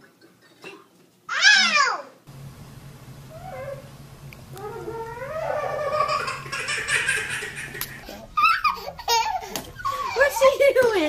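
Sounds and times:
small child giggling: 5.4s - 10.4s.

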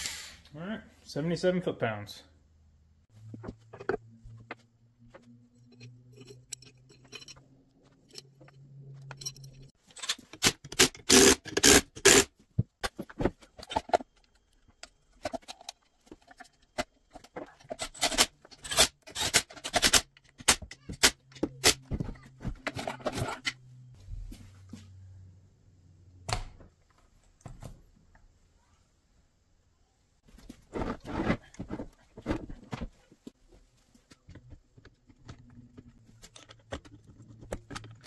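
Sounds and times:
metal tools clattering and scraping: 3.7s - 10.4s, 15.1s - 23.7s.

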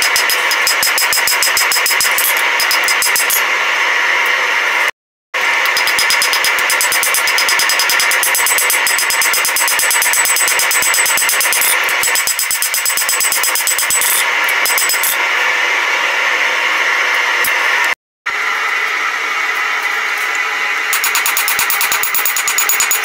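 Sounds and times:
hammer striking steel on anvil: 0.0s - 3.5s, 5.6s - 15.2s, 21.0s - 23.0s.

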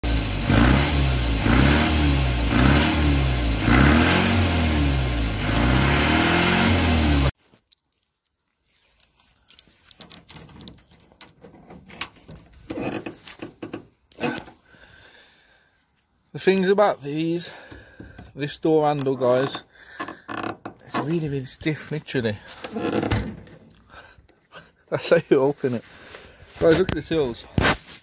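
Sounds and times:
truck engine revving: 0.0s - 7.3s
rustling: 7.4s - 14.6s, 25.2s - 28.0s.

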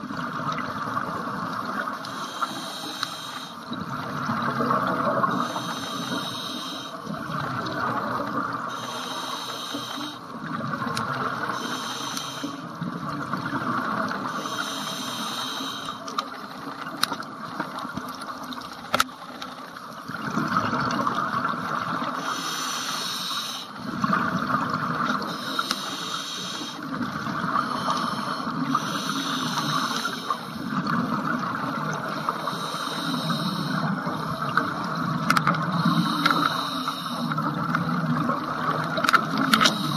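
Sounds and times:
regulator inhale hiss: 2.0s - 3.7s, 5.3s - 7.1s, 8.7s - 10.3s, 11.5s - 12.8s, 14.3s - 16.2s, 22.2s - 23.8s, 25.3s - 27.0s, 27.6s - 30.7s, 32.2s - 34.6s, 35.7s - 37.5s, 39.4s - 39.9s
exhaled bubbles rumbling: 3.7s - 5.5s, 7.0s - 8.7s, 12.7s - 14.3s, 19.9s - 22.2s, 23.8s - 25.4s, 30.6s - 32.2s.

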